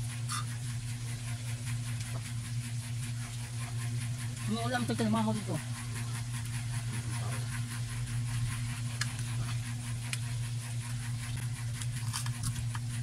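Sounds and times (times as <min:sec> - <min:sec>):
steady low hum: 0:00.0 - 0:13.0
clicks and smacks of eating: 0:08.9 - 0:10.3, 0:11.0 - 0:13.0.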